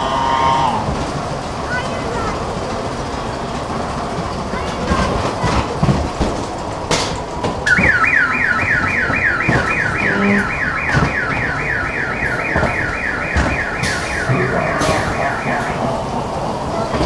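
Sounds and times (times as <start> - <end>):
ride car rumbling on track: 0.0 - 17.0
warbling electronic siren: 7.7 - 16.3.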